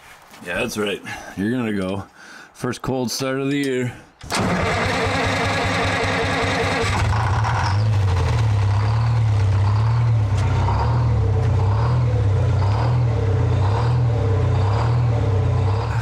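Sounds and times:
large truck engine running: 4.3s - 16.0s.

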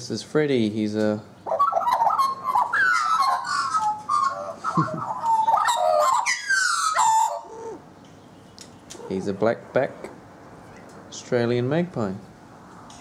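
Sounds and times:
magpie warbling whistles: 1.5s - 7.8s.

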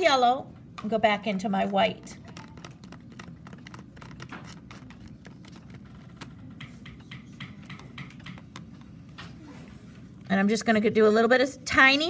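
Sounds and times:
low room hum: 0.0s - 12.0s
brush tapping against container: 5.8s - 8.9s.

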